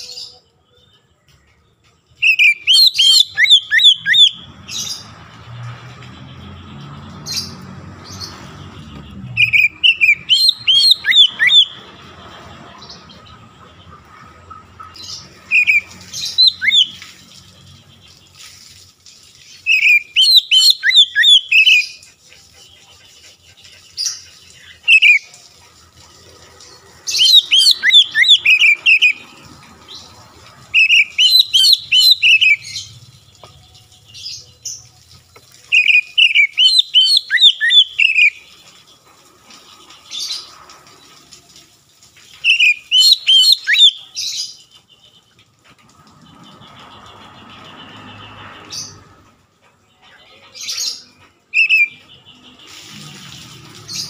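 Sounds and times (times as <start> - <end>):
bird singing whistled notes: 2.2 - 5.1, 8.2 - 11.8, 15.5 - 17.1, 19.6 - 22.0, 27.1 - 29.2, 30.8 - 34.5, 35.7 - 38.4, 42.4 - 44.4, 51.5 - 52.4.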